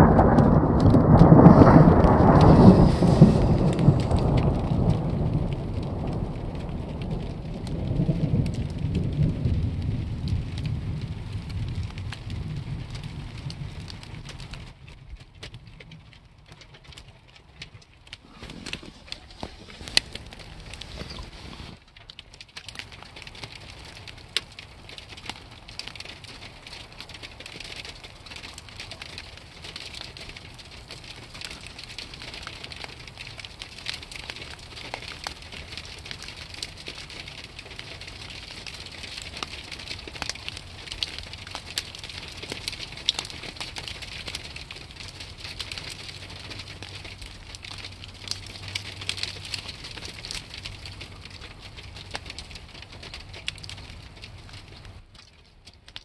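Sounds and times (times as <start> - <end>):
snow pellets pattering: 0.0 - 8.5, 18.2 - 21.8.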